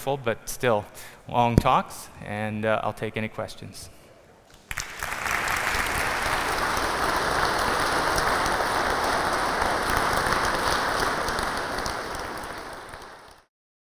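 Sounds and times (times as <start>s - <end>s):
large audience applauding: 4.5s - 13.5s.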